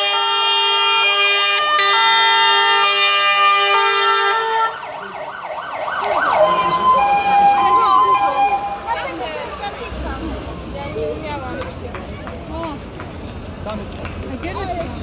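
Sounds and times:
sweeping siren: 0.0 - 9.1
two-tone fire engine siren: 0.0 - 9.2.

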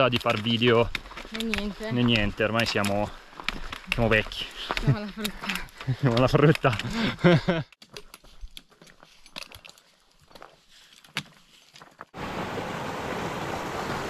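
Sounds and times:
boots crunching on gravel: 0.0 - 5.1
trekking poles clicking on rock: 0.0 - 12.1.

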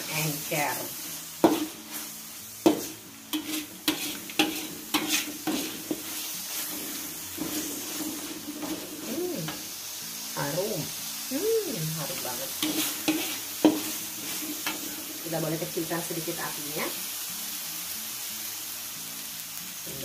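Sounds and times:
metal spatula scraping wok: 0.0 - 9.7, 12.0 - 16.5
paste sizzling in oil: 0.0 - 20.0.

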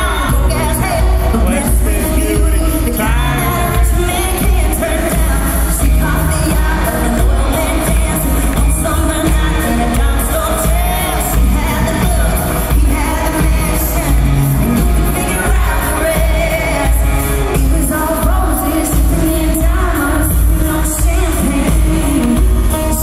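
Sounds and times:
live pop-country band: 0.0 - 23.0
woman singing lead vocal: 0.0 - 23.0.

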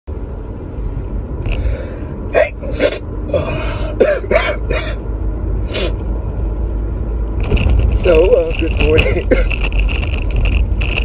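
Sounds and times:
man coughing: 2.3 - 5.0
low rumble: 5.0 - 11.0.

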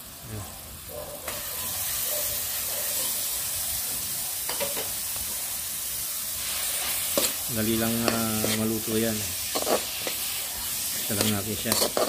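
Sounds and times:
meat sizzling in hot oil: 0.0 - 12.0.

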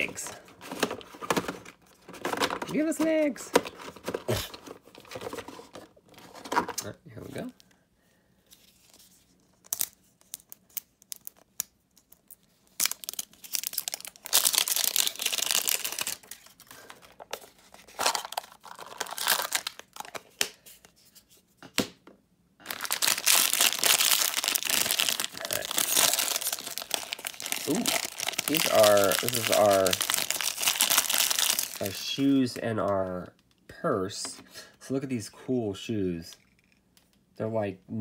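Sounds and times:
plastic wrapper crinkling and tearing: 8.6 - 20.6, 22.6 - 32.4.

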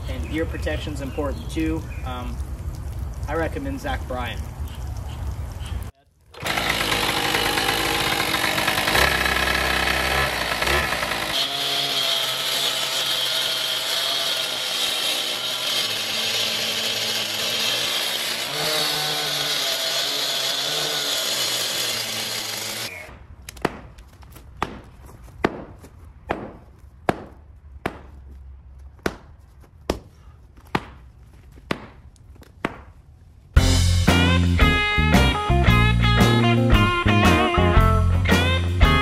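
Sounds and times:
concrete cut-off saw running: 6.4 - 23.0.

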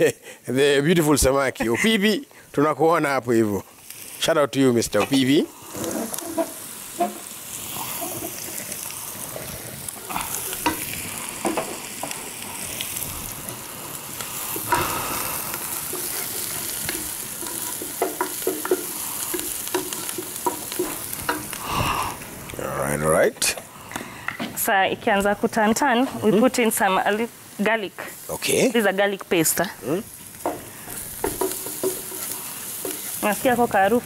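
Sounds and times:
onions sizzling in oil: 0.0 - 34.0
utensil knocking against pan: 16.8 - 21.6, 30.4 - 32.2.

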